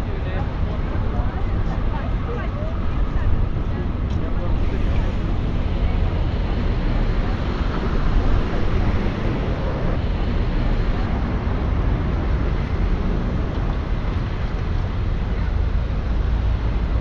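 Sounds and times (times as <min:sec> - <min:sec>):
traffic rumble: 0:00.0 - 0:17.0
wind hiss: 0:03.4 - 0:17.0.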